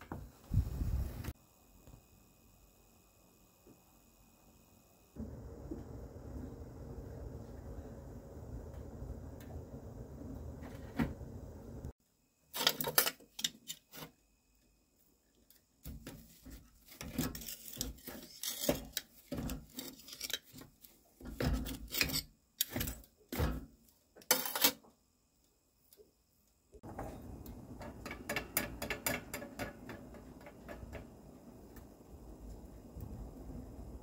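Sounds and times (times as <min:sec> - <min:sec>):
briquette knocking and scraping stove: 0:26.8 - 0:33.2
fire hissing and clicking: 0:27.1 - 0:34.0.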